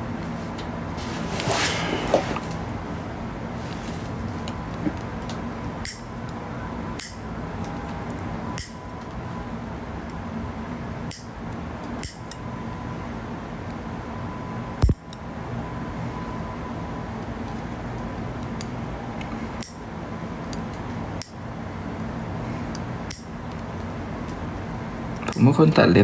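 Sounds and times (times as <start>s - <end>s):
steady background hum: 0.0s - 26.0s
nail clipper clicks: 5.8s - 6.1s, 7.0s - 7.2s, 8.6s - 8.8s, 11.1s - 11.3s, 12.0s - 12.4s, 23.1s - 23.3s.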